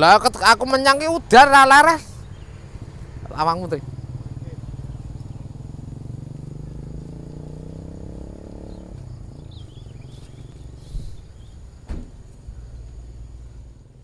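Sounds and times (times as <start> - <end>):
engine running: 2.4 - 14.0
sharp knocks: 11.8 - 12.3.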